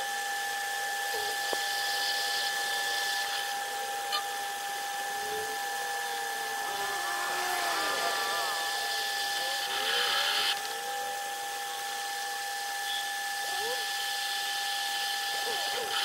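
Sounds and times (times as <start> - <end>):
cutting tool hissing on steel: 1.4 - 16.0
metal lathe whining: 1.9 - 12.6.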